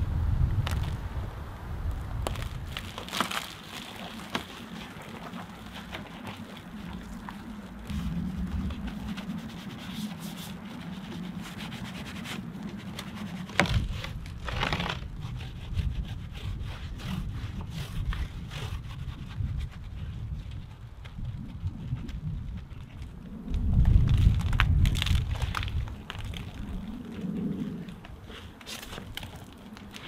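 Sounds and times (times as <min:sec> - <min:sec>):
wash mitt scrubbing wet foam: 0:02.7 - 0:13.9.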